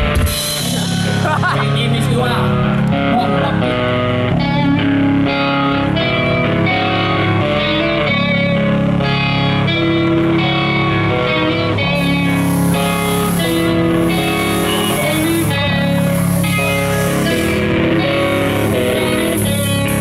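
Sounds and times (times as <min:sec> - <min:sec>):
electric guitar chords: 0:00.0 - 0:20.0
live metal band: 0:00.0 - 0:20.0
cymbals: 0:11.9 - 0:20.0.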